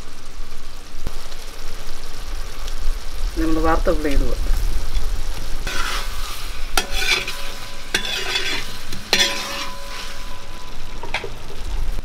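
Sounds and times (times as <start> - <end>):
food sizzling in a metal pot: 0.0 - 12.0
tongs scraping pot: 5.7 - 11.1.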